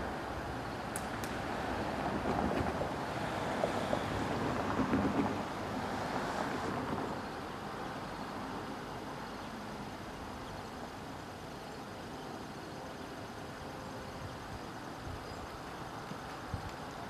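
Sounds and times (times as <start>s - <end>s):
passing road vehicle rumble: 0.0s - 11.4s.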